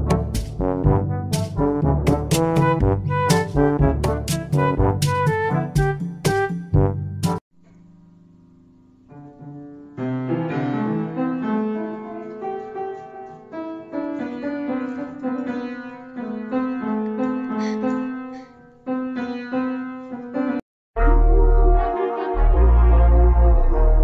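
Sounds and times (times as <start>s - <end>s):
upright piano notes: 9.1s - 20.6s.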